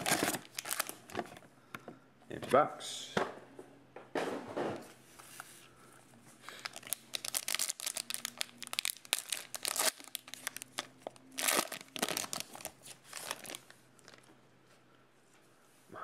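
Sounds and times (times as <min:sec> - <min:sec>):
plastic wrapper tearing and crinkling: 0:00.0 - 0:01.2, 0:06.5 - 0:14.3.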